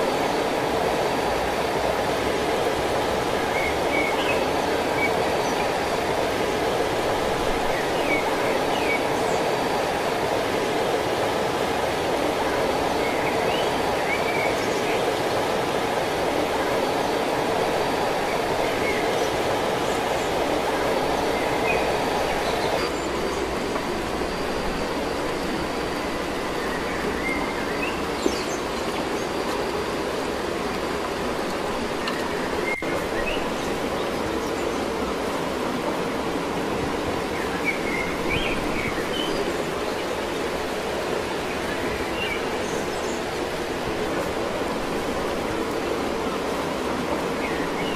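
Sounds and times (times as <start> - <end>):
waterfall rushing: 0.0 - 47.9.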